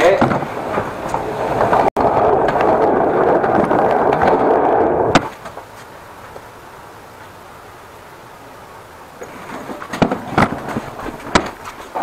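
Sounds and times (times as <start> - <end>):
small wheels rolling on tiles: 0.4 - 6.4.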